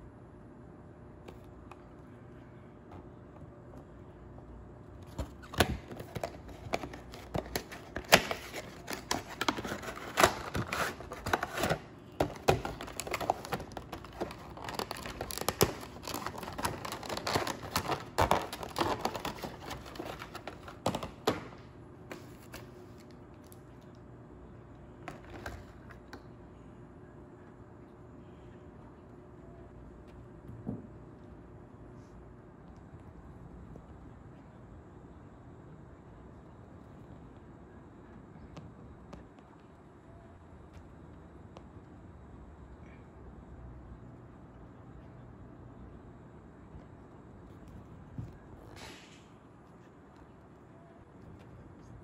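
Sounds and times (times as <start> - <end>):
plastic wrap crinkling and tearing: 5.4 - 21.4.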